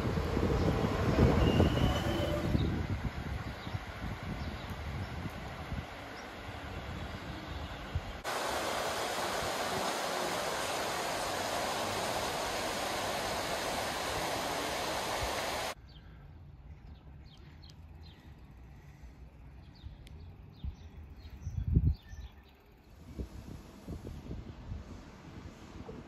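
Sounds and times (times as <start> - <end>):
water rushing over weir: 8.2 - 15.8
small birds chirping: 15.3 - 23.0.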